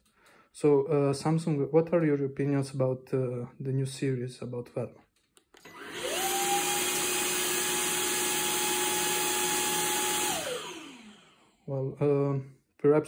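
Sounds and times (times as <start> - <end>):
vacuum cleaner motor whine: 5.6 - 11.6.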